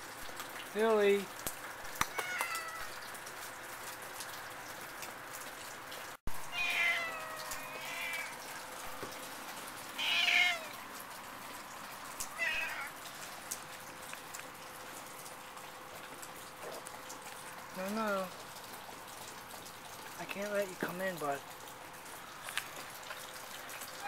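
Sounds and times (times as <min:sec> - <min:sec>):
cat meowing: 0:02.1 - 0:02.9, 0:06.5 - 0:08.4, 0:10.0 - 0:10.8, 0:12.3 - 0:12.9.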